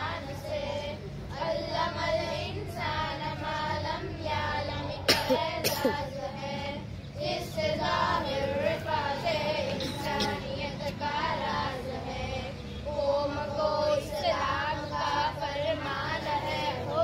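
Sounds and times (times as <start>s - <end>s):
children singing: 0.0s - 17.0s.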